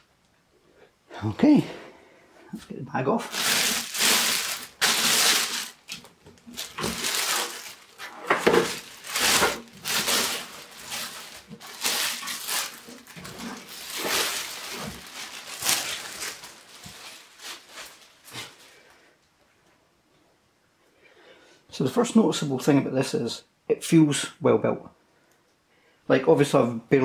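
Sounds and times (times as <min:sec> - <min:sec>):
plastic bag crinkling: 0:03.2 - 0:18.8.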